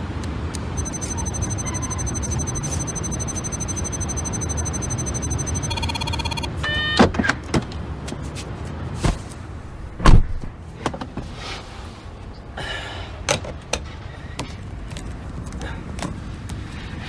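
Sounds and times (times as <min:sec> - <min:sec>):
rising chirp: 0:00.8 - 0:06.5
short electronic beep: 0:00.8 - 0:06.8.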